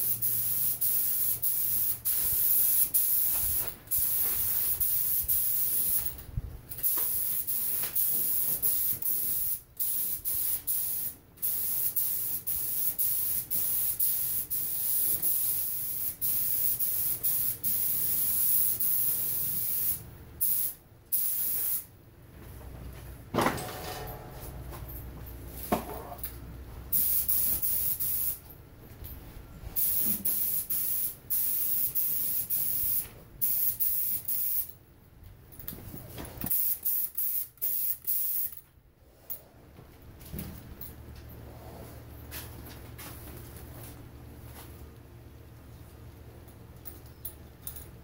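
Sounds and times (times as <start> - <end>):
paint spray gun hissing: 0.0 - 6.0, 6.8 - 21.9.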